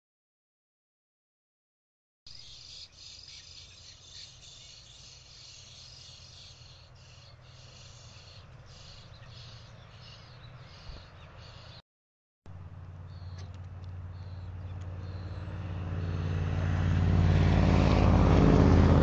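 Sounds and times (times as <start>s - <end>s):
high-pitched chirping chorus: 2.3s - 11.8s, 14.1s - 16.4s
low hum: 12.5s - 19.0s.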